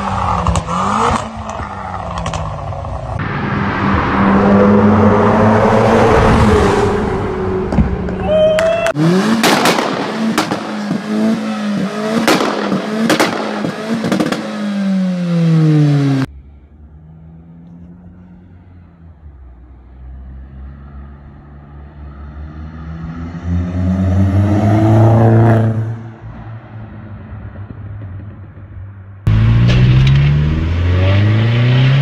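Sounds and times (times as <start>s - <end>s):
car engine revving: 0.0s - 8.2s, 8.9s - 18.9s, 29.3s - 32.0s
car accelerating: 0.0s - 28.4s, 29.2s - 32.0s
exhaust pops and bangs: 9.3s - 14.6s.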